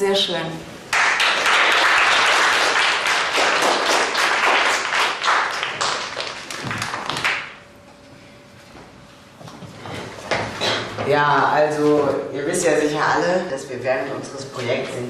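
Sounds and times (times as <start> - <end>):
children applauding: 0.9 - 7.6.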